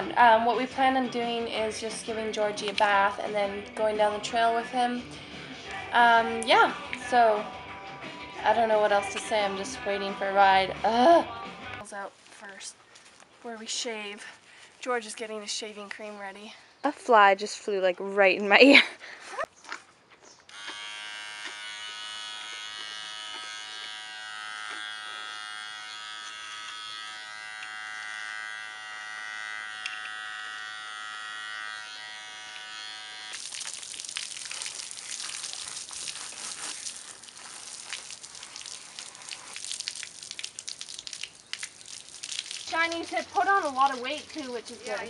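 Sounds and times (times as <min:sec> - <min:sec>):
electric clippers buzzing: 0:20.5 - 0:33.5
garden hose spraying water: 0:32.5 - 0:45.0.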